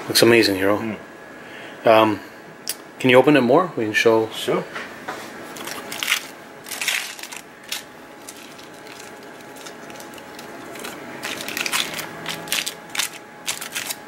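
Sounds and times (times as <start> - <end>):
aluminium foil crinkling: 5.5 - 14.0.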